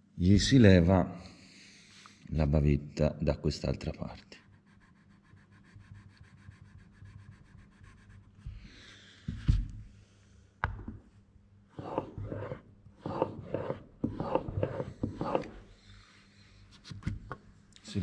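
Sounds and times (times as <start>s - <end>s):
blade rubbing on a wet whetstone: 11.8s - 15.6s.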